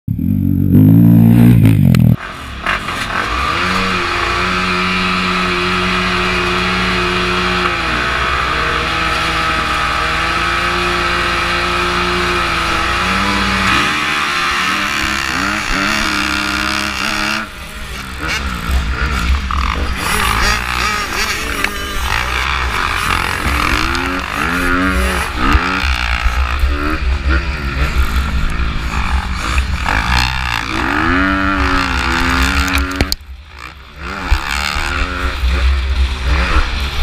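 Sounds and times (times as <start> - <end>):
dirt bike passing close: 0.1 - 37.0
dirt bikes revving: 0.1 - 37.0.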